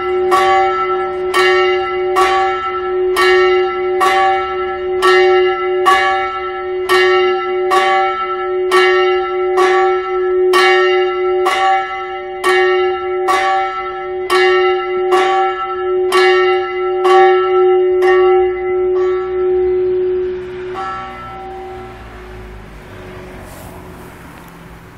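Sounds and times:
church bell ringing: 0.0 - 24.6
bell humming tone: 18.0 - 23.2.

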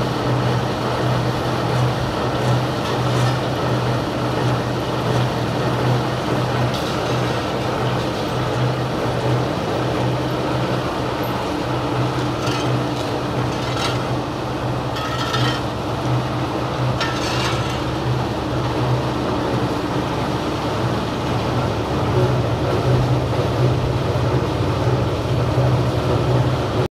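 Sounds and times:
machinery humming: 0.0 - 26.9
short scraping sounds: 12.2 - 15.8, 17.0 - 18.0.

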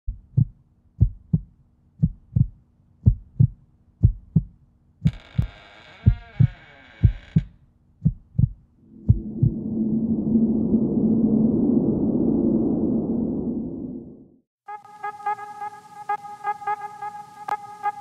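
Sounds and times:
heartbeat thumps: 0.1 - 4.6, 5.4 - 9.7.

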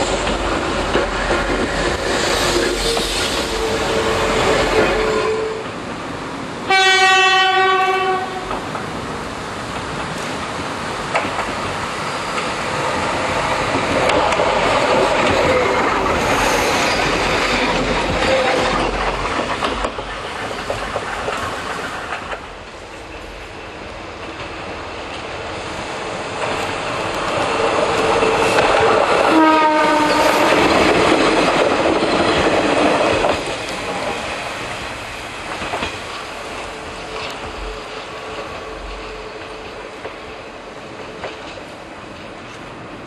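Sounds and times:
rail and wheel clatter: 0.0 - 43.0
train passing: 0.0 - 43.0
train horn blast: 2.8 - 5.8, 6.7 - 8.6, 29.3 - 30.8.

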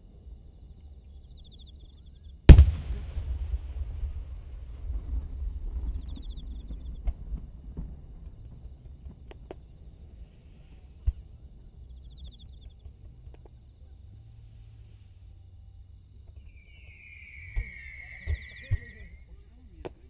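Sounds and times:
crickets chirping: 0.0 - 20.0
sharp thump: 2.5 - 4.2
faint pops: 2.5 - 4.9
low rumble: 2.5 - 6.9
distant fireworks: 2.5 - 9.7, 16.4 - 19.2.

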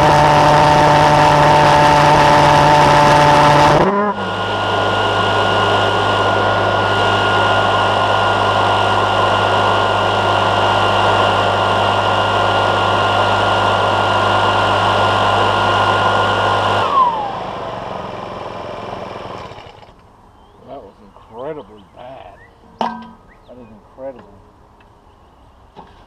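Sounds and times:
pulse jet engine buzzing: 0.0 - 19.6
engine whine sliding down: 0.0 - 20.0.

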